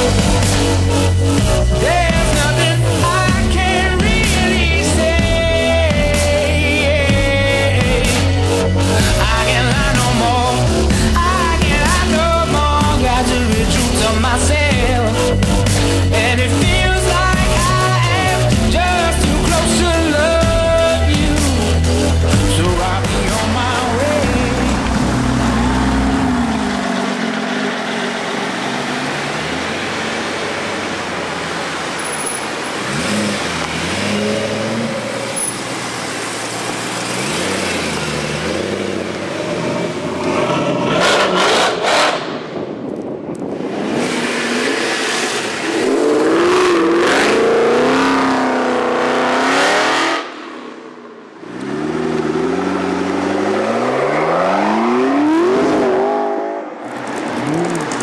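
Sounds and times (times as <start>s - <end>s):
engines revving: 0.0s - 58.0s
sports cars driving past: 21.8s - 58.0s.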